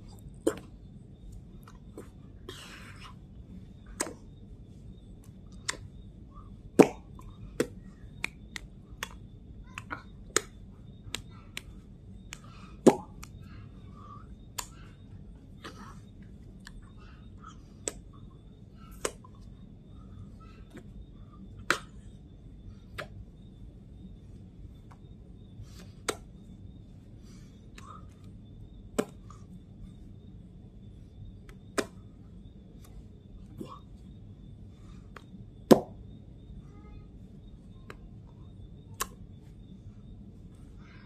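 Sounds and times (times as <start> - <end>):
finger snaps: 4.0 - 4.2, 5.2 - 5.9, 6.8 - 13.6, 14.5 - 15.0, 16.6 - 16.9, 17.8 - 18.1, 18.9 - 19.5, 21.6 - 22.0, 22.9 - 23.2, 25.8 - 26.3, 27.7 - 28.2, 31.4 - 32.0, 37.8 - 38.1, 38.9 - 39.3
light hand claps: 6.8 - 7.0, 7.6 - 13.4.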